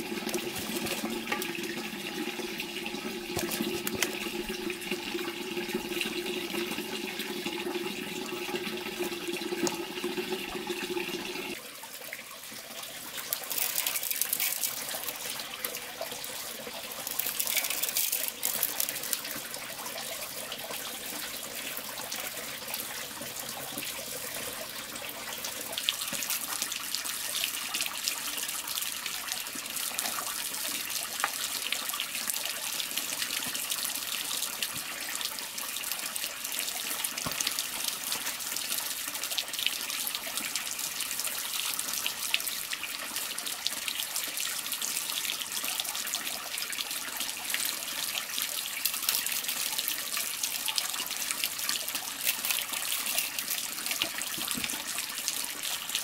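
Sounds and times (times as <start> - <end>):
running water splashing: 0.0 - 11.6, 13.0 - 15.9.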